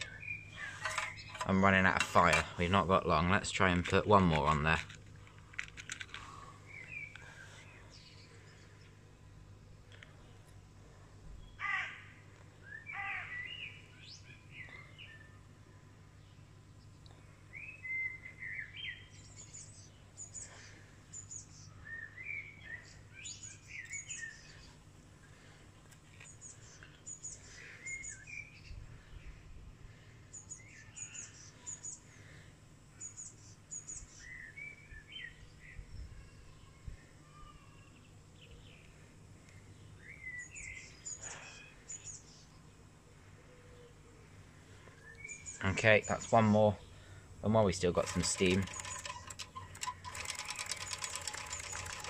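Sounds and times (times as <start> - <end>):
birds chirping: 0.0 - 5.0, 5.8 - 9.0, 16.2 - 29.4, 38.0 - 42.8, 43.5 - 52.0.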